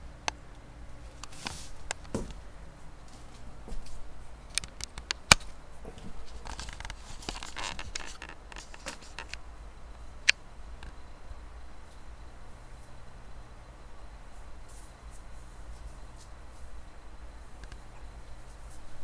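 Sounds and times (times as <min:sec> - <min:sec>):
newspaper crinkling and rustling: 0:06.2 - 0:09.4.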